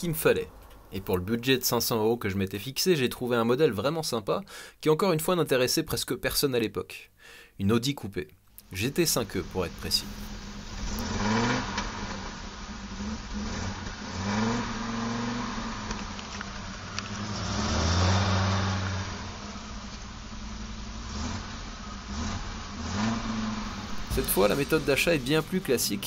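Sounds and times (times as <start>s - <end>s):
road noise: 0.0s - 2.6s, 8.5s - 26.0s
car engine accelerating: 8.6s - 26.0s.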